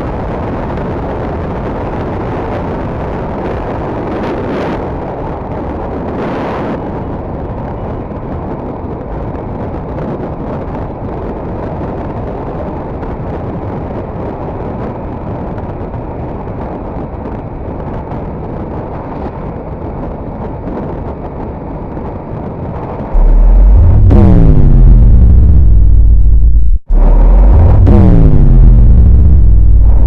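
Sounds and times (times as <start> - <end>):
wind rush on microphone: 0.0 - 30.0
road noise: 22.2 - 30.0
motorcycle engine: 23.2 - 30.0.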